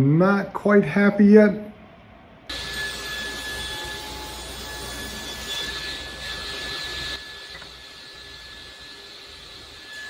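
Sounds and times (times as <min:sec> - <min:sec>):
saw blade whining: 0:02.5 - 0:10.0
table saw cutting wood: 0:02.5 - 0:10.0.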